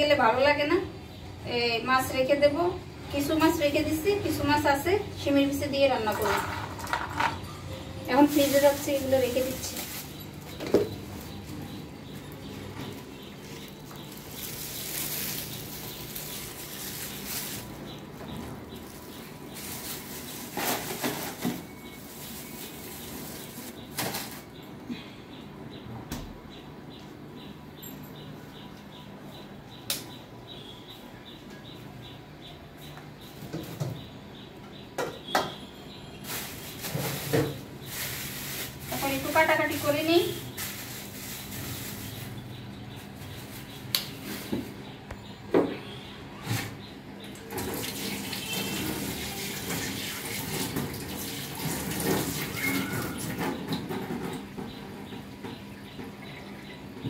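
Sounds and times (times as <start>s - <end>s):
faint high chirp: 52.5s - 53.4s.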